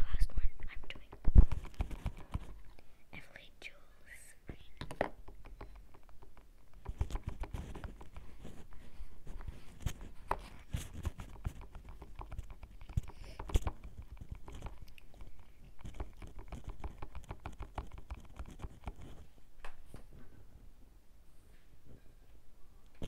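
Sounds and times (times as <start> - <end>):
fingers handling a cable microphone: 0.9 - 2.8, 4.8 - 20.1.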